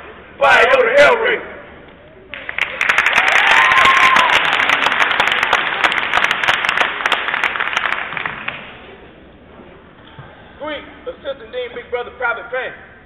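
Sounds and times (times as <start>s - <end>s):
group clapping: 2.3s - 9.0s.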